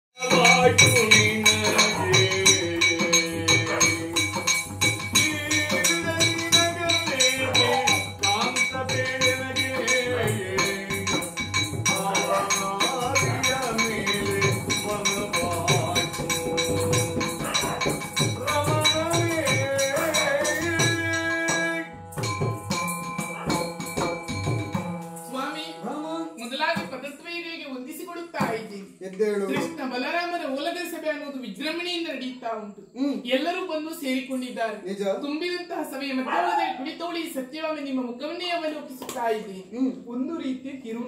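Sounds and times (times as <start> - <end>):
person singing wavering melody: 0.2 - 26.6
ankle bells jingling: 0.2 - 26.7.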